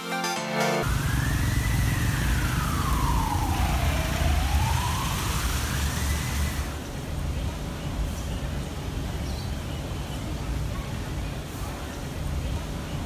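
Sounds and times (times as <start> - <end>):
music: 0.0 - 0.9
siren wailing: 0.8 - 6.8
street traffic rumbling: 0.8 - 13.0.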